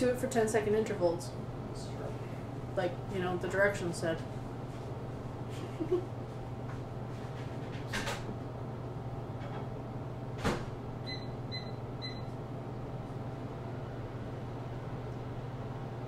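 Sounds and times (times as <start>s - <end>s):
microwave oven beeps: 11.0s - 12.4s.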